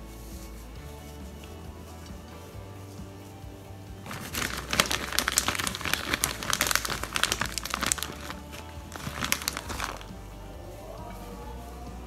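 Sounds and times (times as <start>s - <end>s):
plastic bag crinkling: 4.1s - 10.1s.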